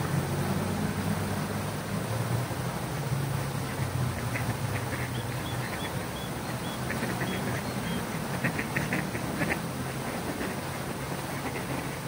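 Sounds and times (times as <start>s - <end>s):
fountain water running: 0.0s - 12.0s
ducks quacking: 3.6s - 10.7s.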